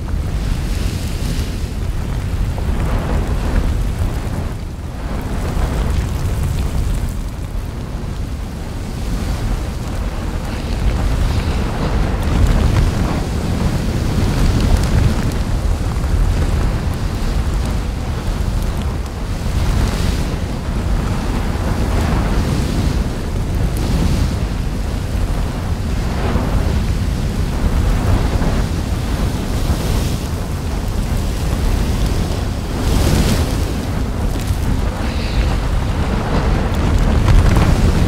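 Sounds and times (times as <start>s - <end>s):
deep volcanic rumble: 0.0s - 38.0s
lava splashing: 0.0s - 38.0s.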